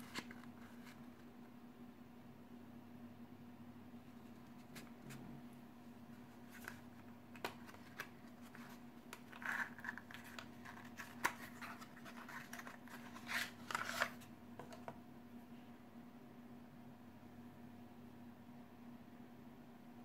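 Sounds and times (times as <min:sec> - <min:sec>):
faint steady hum: 0:00.0 - 0:20.0
cardboard packaging clicks and taps: 0:06.6 - 0:08.1.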